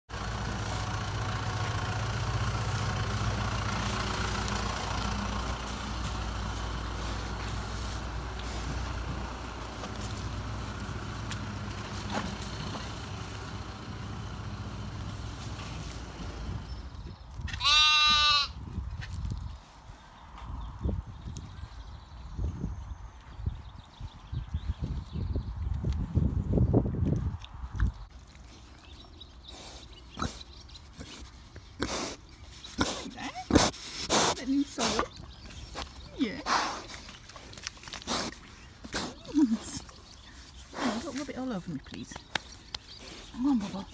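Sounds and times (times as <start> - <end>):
pigs snuffling and grunting: 0.1 - 17.0, 27.0 - 43.9
lamb bleating: 17.5 - 18.6.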